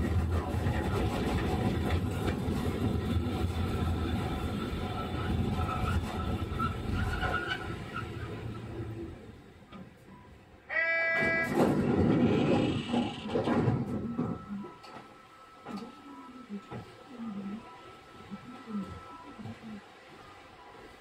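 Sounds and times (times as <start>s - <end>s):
tram running hum and rumble: 0.0s - 21.0s.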